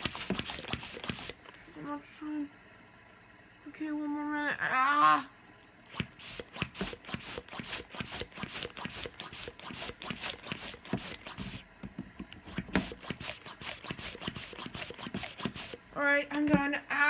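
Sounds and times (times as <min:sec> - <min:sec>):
balloon pump hissing puffs: 0:00.0 - 0:01.6, 0:05.8 - 0:11.7, 0:12.4 - 0:15.9
plastic knocks of pump: 0:10.6 - 0:13.0.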